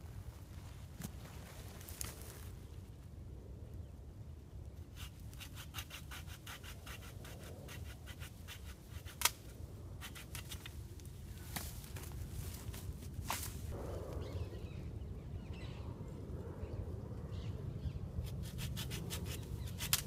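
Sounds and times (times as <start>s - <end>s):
pruning saw cutting branches: 5.0s - 10.8s, 18.3s - 20.0s
branch cracking: 10.1s - 13.7s.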